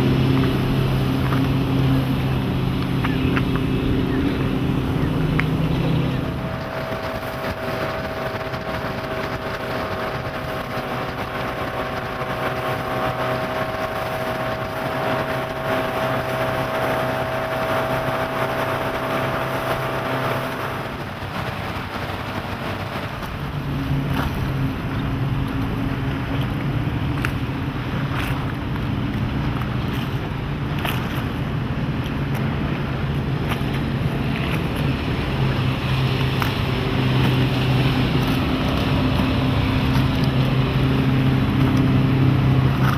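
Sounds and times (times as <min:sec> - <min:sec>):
motorboat engine running: 0:00.0 - 0:42.9
water rushing along hull: 0:00.0 - 0:42.9
wind on microphone: 0:00.0 - 0:42.9.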